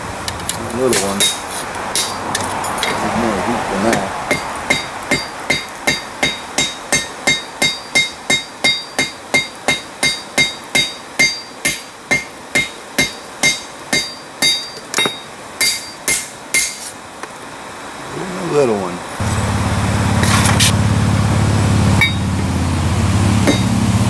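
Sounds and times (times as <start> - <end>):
hammer ringing on steel anvil: 3.9 - 16.8, 22.0 - 22.3, 23.4 - 23.7
sharp hammer strikes without ring: 3.9 - 16.9, 23.4 - 23.8.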